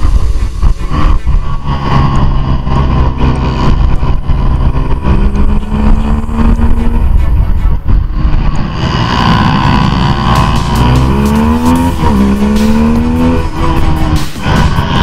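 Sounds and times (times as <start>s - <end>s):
motorcycle engine revving: 0.0s - 15.0s
wind rush: 0.0s - 15.0s.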